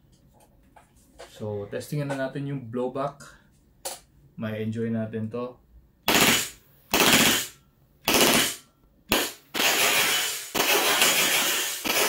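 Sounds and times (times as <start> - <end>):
airsoft pistol firing bursts: 6.1 - 12.0.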